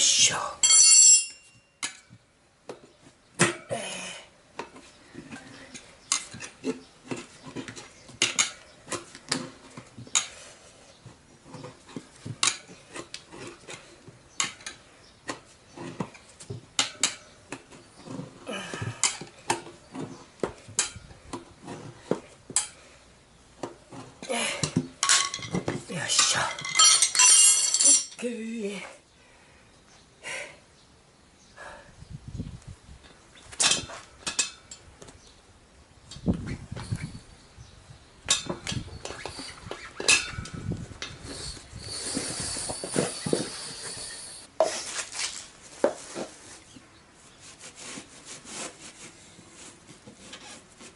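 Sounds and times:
tyre levers clinking on metal rim: 0.6s - 2.2s, 23.9s - 28.2s, 33.5s - 34.9s, 38.3s - 44.3s.

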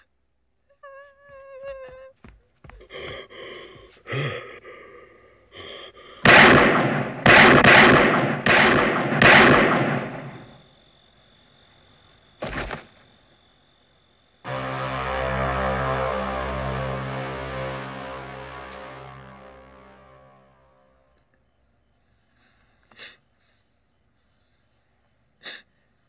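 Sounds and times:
person whimpering and gasping: 2.8s - 6.3s
handgun shots: 6.3s - 10.5s
scary music: 14.5s - 21.2s.

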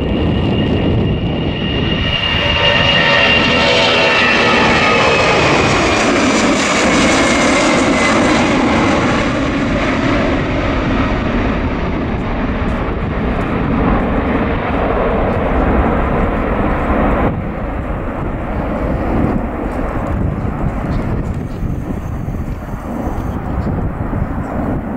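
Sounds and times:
jet engine whine: 0.0s - 24.9s
jet engines rumbling: 0.0s - 24.9s.

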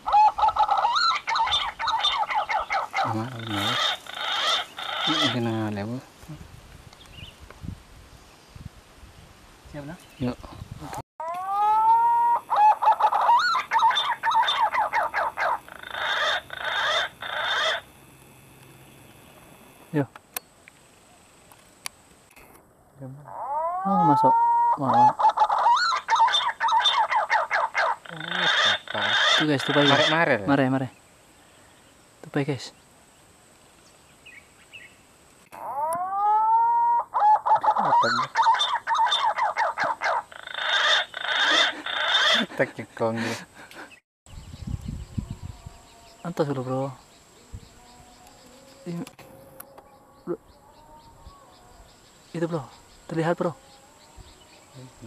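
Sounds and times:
loud animal calls: 0.0s - 5.6s, 11.2s - 18.0s, 23.2s - 30.5s, 35.5s - 43.6s
harsh rasping bird phrases: 0.0s - 6.0s, 9.8s - 17.9s, 23.0s - 31.0s, 35.6s - 43.2s, 52.3s - 55.0s
pigeon whistling song: 11.4s - 17.8s.

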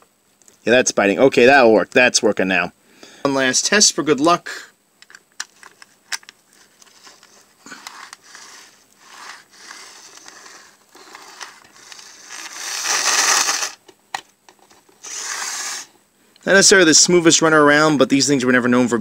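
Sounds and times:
model train motor whirring: 7.0s - 13.8s, 15.0s - 15.9s.

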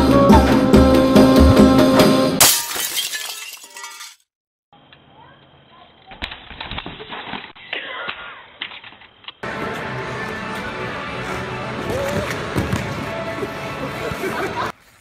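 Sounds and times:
crash with breaking glass: 2.4s - 4.2s.

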